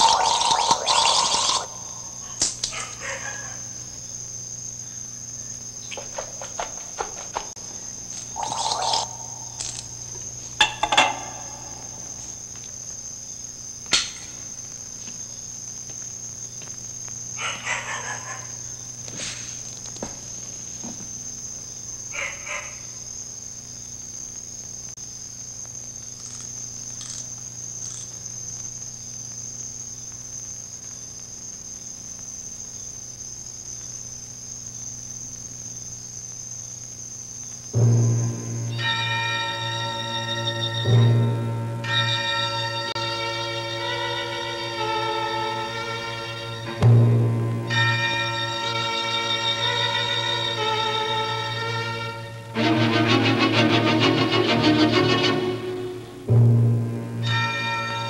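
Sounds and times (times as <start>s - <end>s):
low hum: 0.0s - 2.9s, 7.6s - 12.6s, 46.7s - 48.7s
crickets chirring: 0.0s - 58.0s
knocks and rustles of movement: 5.9s - 8.3s.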